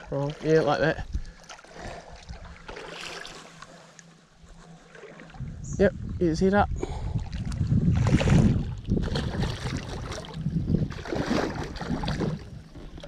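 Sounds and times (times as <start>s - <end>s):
wind rumbling on microphone: 0.0s - 2.7s, 5.2s - 13.0s
fish thrashing in water: 1.2s - 3.7s, 7.2s - 13.0s.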